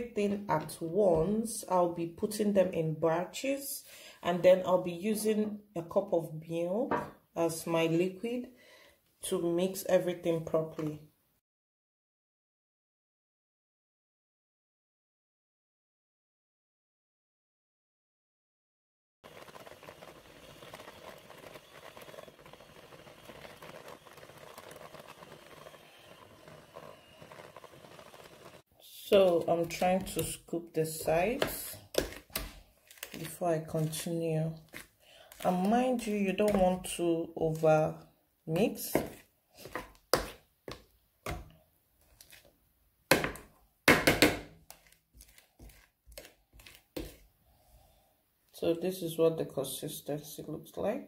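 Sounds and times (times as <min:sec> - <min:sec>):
electric hand mixer running: 0:19.3 - 0:28.7
metal spoon scraping plastic bowl: 0:19.4 - 0:37.6, 0:38.5 - 0:42.5, 0:44.6 - 0:47.3.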